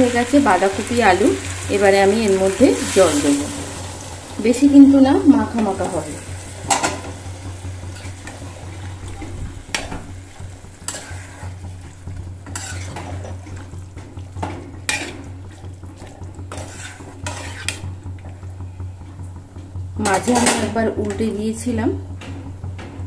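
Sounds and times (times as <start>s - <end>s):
curry sizzling: 0.0s - 23.0s
steady low hum: 0.0s - 23.0s
metal spatula scraping a pan: 7.9s - 8.5s, 10.8s - 11.6s, 12.4s - 13.7s, 14.8s - 15.4s, 16.5s - 17.9s.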